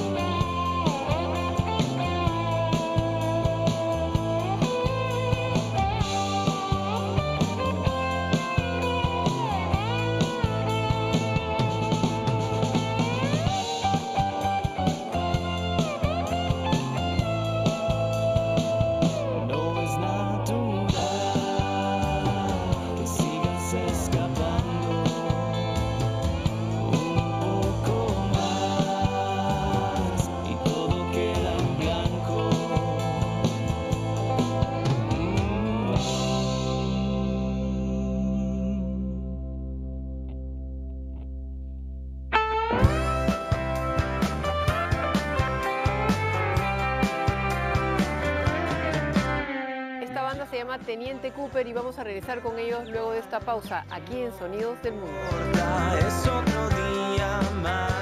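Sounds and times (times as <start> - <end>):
steady drum beat: 0.0 - 19.9, 20.8 - 36.9, 42.8 - 49.4, 55.2 - 58.0
rock band playing: 0.0 - 38.4, 42.3 - 58.0
person singing: 0.0 - 39.3, 54.6 - 58.0
electric guitars sliding notes: 0.0 - 41.3, 42.3 - 58.0
bass: 0.0 - 58.0.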